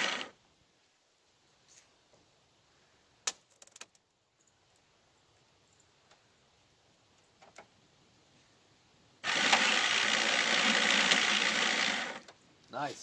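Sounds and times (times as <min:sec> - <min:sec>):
electric winch motor running: 0:00.0 - 0:00.3, 0:09.2 - 0:12.3.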